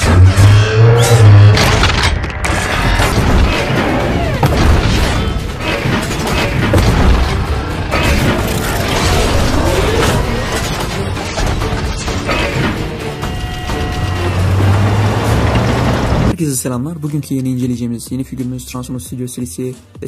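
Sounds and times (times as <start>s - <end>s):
dramatic music: 0.0s - 16.9s
heavy booms: 2.9s - 5.7s.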